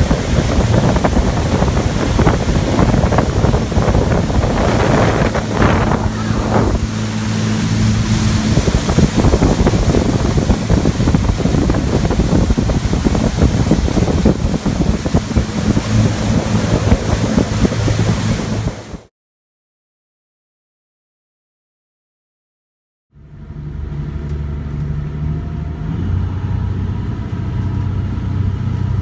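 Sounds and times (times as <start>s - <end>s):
boat diesel engine humming: 0.0s - 19.1s, 23.2s - 29.0s
water rushing along hull: 0.0s - 19.1s, 23.6s - 29.0s
wind on microphone: 0.0s - 19.1s.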